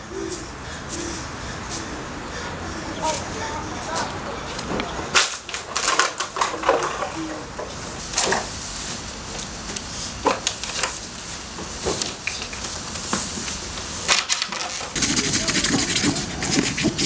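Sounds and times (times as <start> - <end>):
scratching on cardboard: 14.9 - 17.0.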